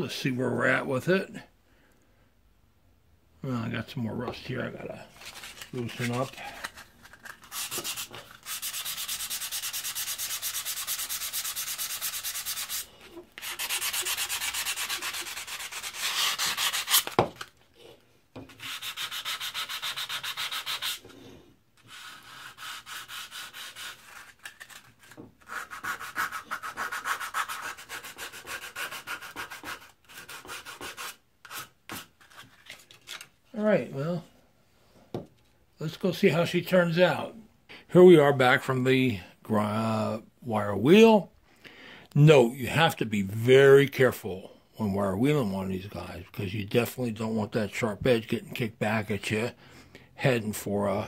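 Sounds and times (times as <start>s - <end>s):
sandpaper rasping on metal: 7.4s - 17.1s, 18.6s - 21.0s, 21.9s - 24.8s, 25.4s - 31.7s.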